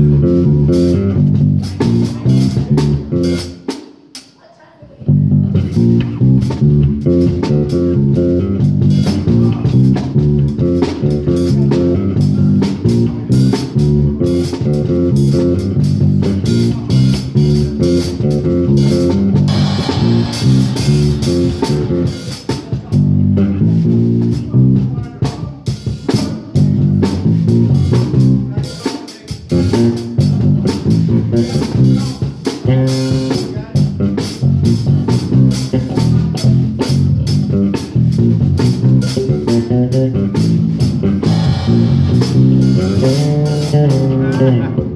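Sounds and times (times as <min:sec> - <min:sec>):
bass guitar and guitar: 0:00.0 - 0:03.8, 0:04.9 - 0:44.9
drum kit and cymbal crashes: 0:18.8 - 0:22.9.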